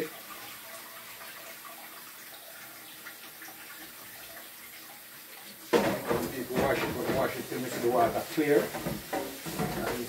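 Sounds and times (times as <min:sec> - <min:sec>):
tap running into a pot: 0:05.7 - 0:10.0.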